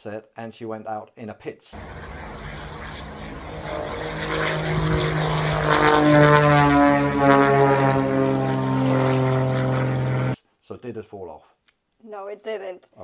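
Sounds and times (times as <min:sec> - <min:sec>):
propeller plane flying past: 0:01.8 - 0:10.4.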